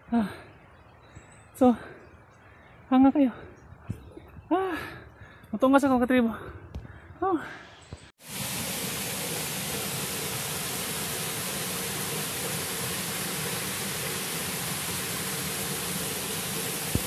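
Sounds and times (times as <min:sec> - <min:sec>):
waterfall pouring into pool: 0:08.2 - 0:17.0.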